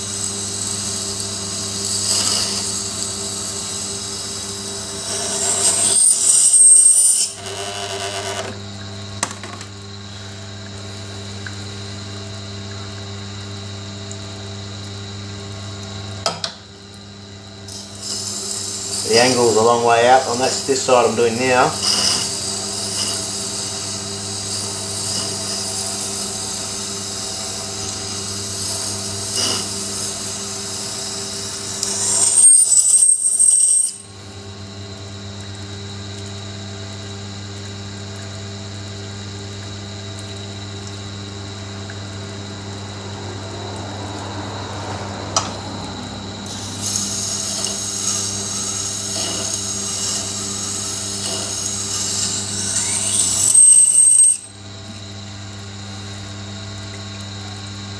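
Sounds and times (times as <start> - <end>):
grinder motor humming: 0.0 - 11.8, 17.5 - 36.0, 39.8 - 57.9
knife grinding on wet stone: 1.7 - 3.2, 4.5 - 8.5, 17.7 - 30.4, 31.0 - 34.1.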